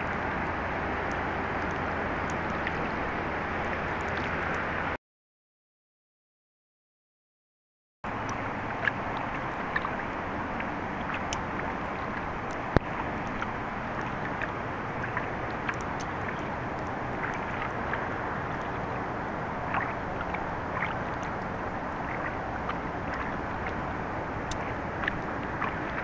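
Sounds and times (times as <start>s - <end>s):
hiss of water and wind: 0.0s - 5.0s, 8.1s - 26.0s
faint ticks: 8.2s - 18.8s, 24.4s - 26.0s.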